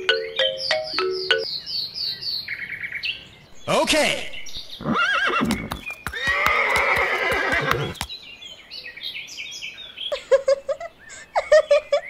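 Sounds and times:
birds chirping: 0.0s - 12.0s
horse neighing: 4.8s - 8.0s.

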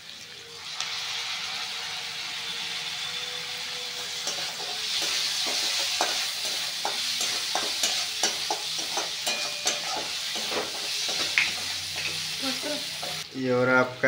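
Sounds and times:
vegetables sizzling in a pan: 0.0s - 14.0s
spatula scraping a pan: 4.0s - 13.2s.

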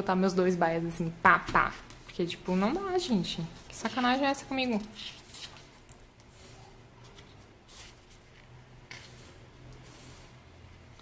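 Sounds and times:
pages turning: 3.5s - 10.2s.

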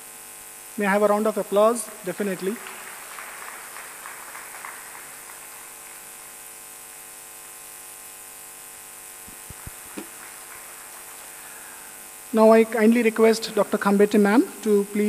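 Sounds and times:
electrical buzz-hum: 0.0s - 15.0s
faint clapping: 2.3s - 6.3s, 9.3s - 12.0s.

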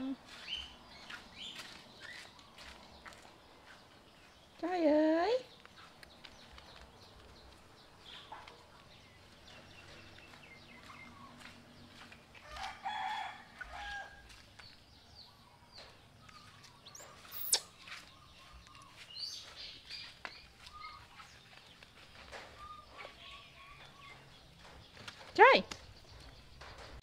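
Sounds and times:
rooster crowing: 12.4s - 14.3s
faint bird chirps: 15.1s - 25.2s.

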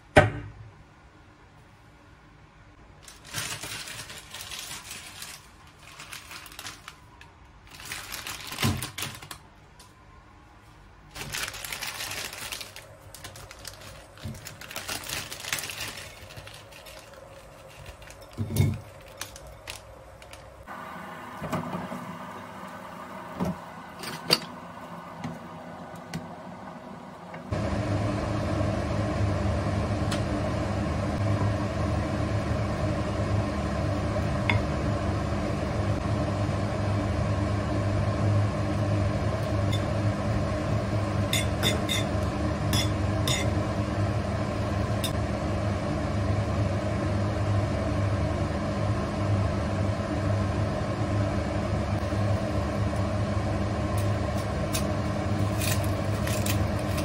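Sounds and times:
electric motor hum: 11.8s - 57.0s.

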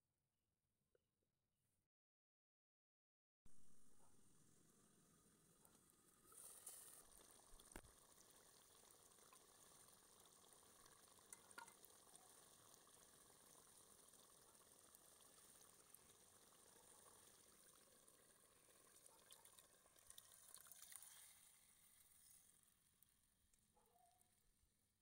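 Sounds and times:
broth simmering faintly: 3.5s - 24.7s
lid clinking: 11.3s - 11.8s.

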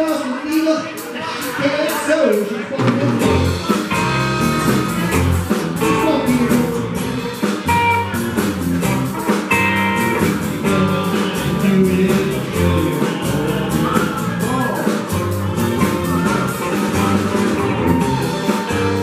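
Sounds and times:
drum kit: 0.0s - 19.0s
guitars: 2.2s - 19.0s
electric bass: 3.2s - 19.0s.

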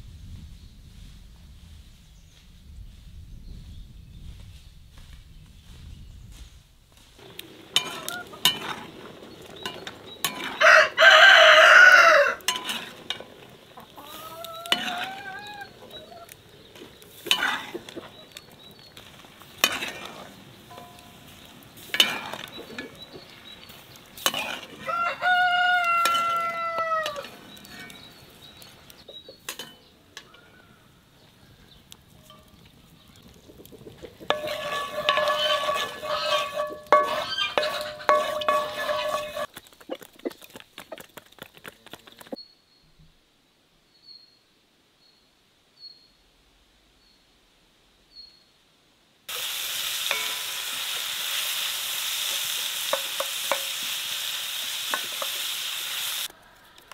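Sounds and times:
spoon stirring in a pan: 7.2s - 11.4s, 12.4s - 30.3s, 33.6s - 39.6s, 50.1s - 51.0s, 52.7s - 54.0s, 54.9s - 55.5s
rooster crowing: 10.4s - 12.5s, 24.8s - 27.4s.

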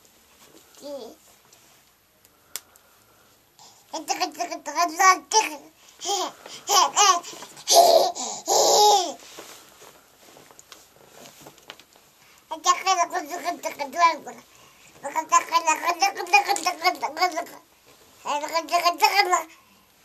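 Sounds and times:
toddler babbling: 0.8s - 1.2s, 4.0s - 9.2s, 12.5s - 14.4s, 15.0s - 17.6s, 18.3s - 19.5s
toddler laughing: 5.4s - 9.2s.

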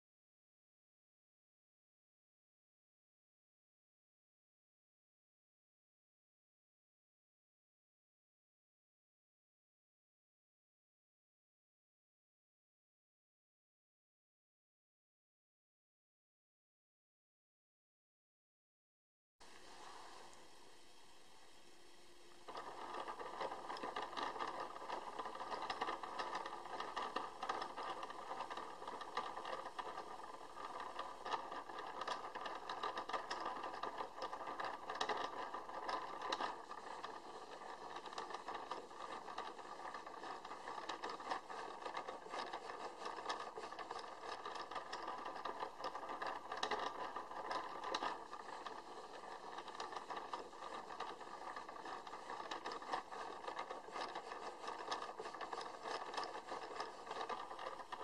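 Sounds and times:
gears clicking and rattling: 22.5s - 58.0s.

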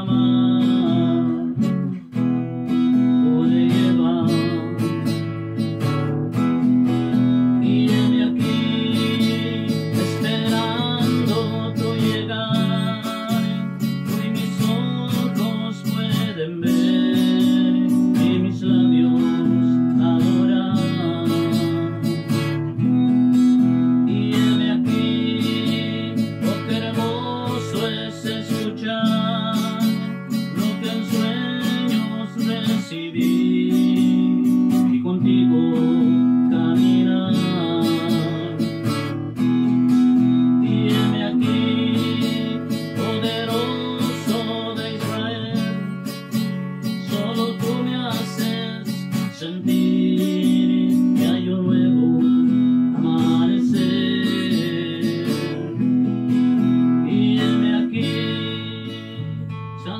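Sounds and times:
acoustic guitar strummed: 0.0s - 59.9s
man singing: 0.0s - 59.9s.

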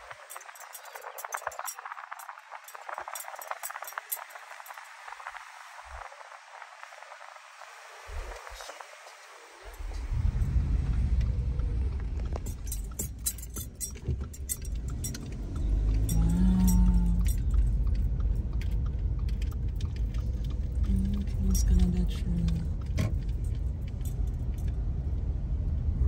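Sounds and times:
light rattling clicks: 0.0s - 4.8s, 12.0s - 24.8s
low road rumble: 0.0s - 26.0s.

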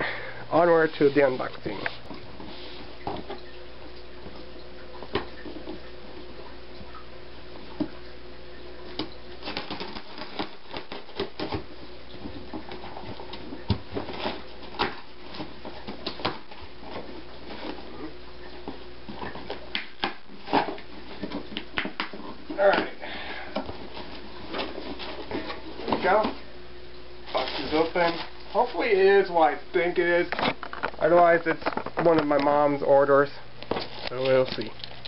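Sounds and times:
faint steady hum: 0.0s - 35.0s
cardboard and wrapping rustling: 0.6s - 3.4s, 8.9s - 26.5s, 27.2s - 29.2s, 29.9s - 32.7s, 33.6s - 35.0s.

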